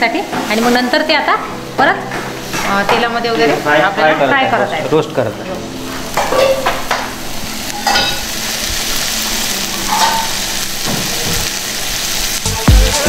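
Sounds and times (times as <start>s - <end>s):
meat sizzling in oil: 0.0s - 13.0s
steel ladle scraping pan: 6.1s - 7.0s, 9.7s - 10.4s.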